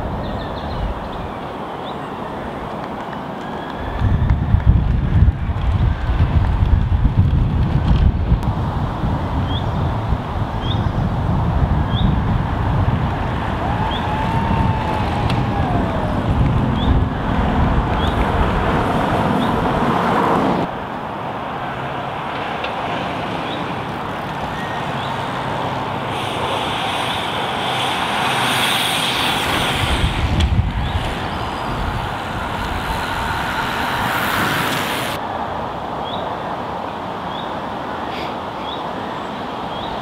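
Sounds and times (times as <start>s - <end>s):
vehicles passing on road: 0.0s - 40.0s
low rumble: 11.4s - 20.8s.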